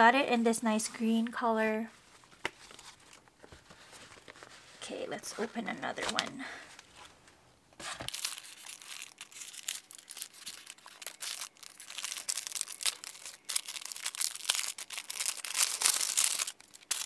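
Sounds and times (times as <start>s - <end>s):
paper bag crinkling: 7.8s - 17.0s.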